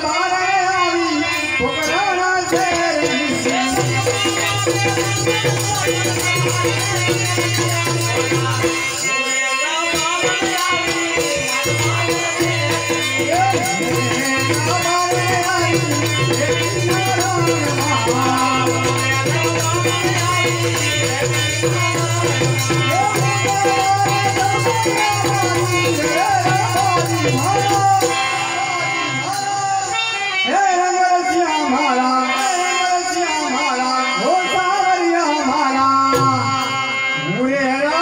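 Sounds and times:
fast rattling percussion: 0.0 - 37.0
person singing into a microphone: 0.0 - 38.0.

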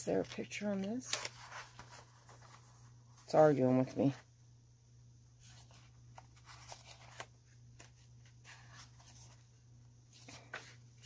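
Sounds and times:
low steady hum: 0.0 - 11.0
paper sheets rustling: 0.1 - 3.5, 5.4 - 11.0.

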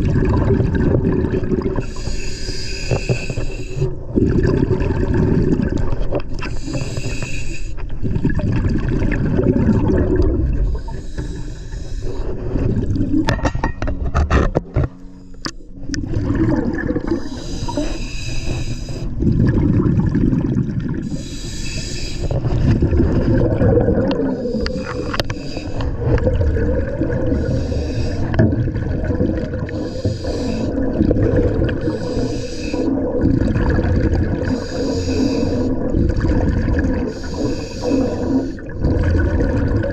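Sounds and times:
exhaled air bubbling: 0.0 - 39.9
regulator breathing hiss: 1.8 - 3.9, 6.5 - 7.8, 10.7 - 12.4, 17.1 - 19.1, 21.0 - 22.3, 24.3 - 25.9, 27.4 - 28.4, 29.7 - 30.8, 31.8 - 33.0, 34.5 - 35.8, 37.1 - 38.6.

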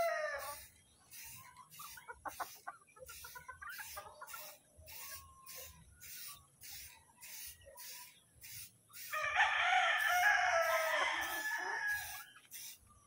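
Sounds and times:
rooster crowing: 0.0 - 0.6, 9.1 - 12.3.

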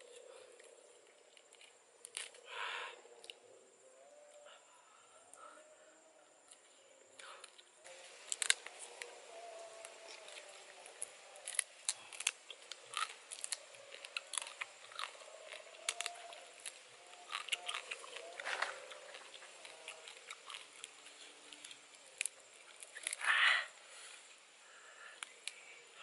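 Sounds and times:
person chewing crunchy food: 1.3 - 2.4, 7.4 - 23.2.

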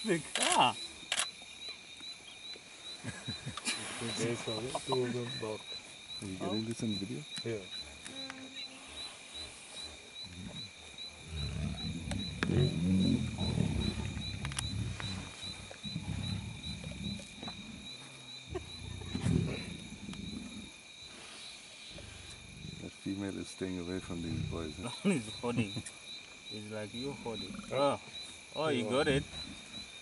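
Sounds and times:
lions growling: 7.6 - 20.8, 23.8 - 24.9.

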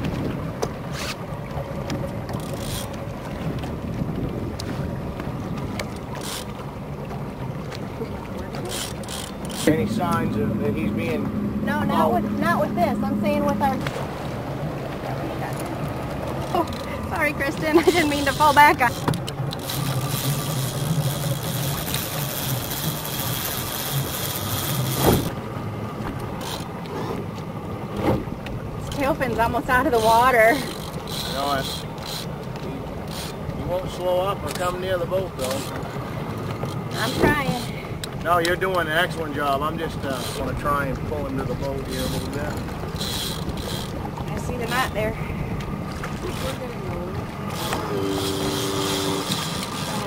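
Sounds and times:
boat engine running: 0.0 - 50.0
wind and water hiss: 0.0 - 50.0
wind buffeting microphone: 1.6 - 6.2.

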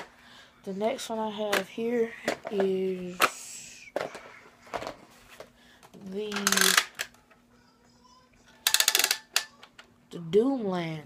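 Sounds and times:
plastic toy blaster clatter: 6.2 - 7.1, 8.6 - 9.5.

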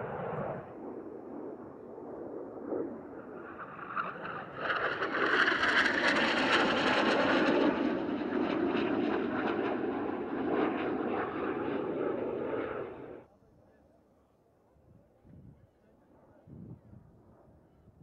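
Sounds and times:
jet passing close: 0.0 - 13.2.

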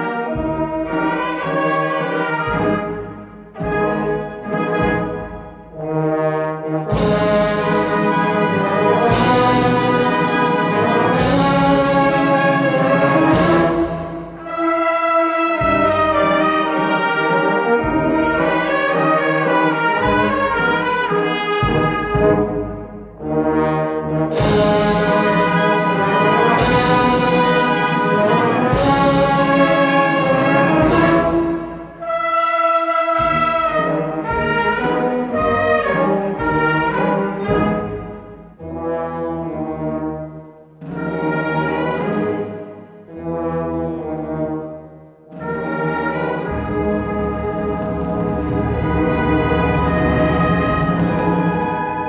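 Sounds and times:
brass band playing funeral march: 0.0 - 52.0
heavy percussion strokes: 6.6 - 22.5, 24.3 - 32.4, 45.4 - 52.0.

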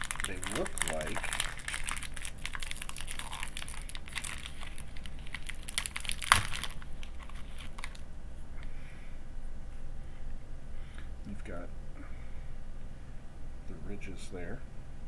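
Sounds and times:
cookie wrapper crinkling: 0.0 - 8.1.

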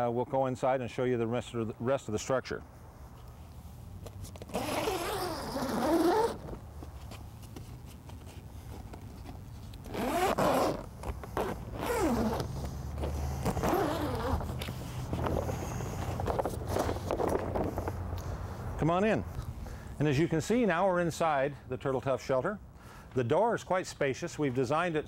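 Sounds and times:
tent zipper being unzipped: 4.4 - 6.6, 9.8 - 17.0.

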